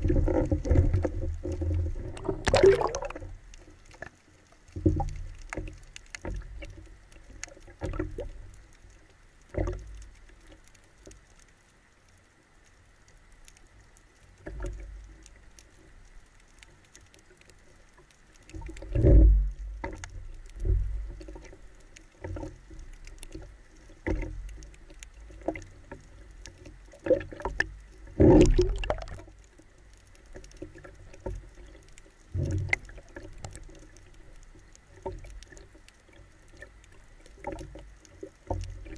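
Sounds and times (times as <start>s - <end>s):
muffled underwater thumps: 0.0s - 3.2s, 28.2s - 29.2s
water sloshing: 0.0s - 4.0s, 18.5s - 29.6s.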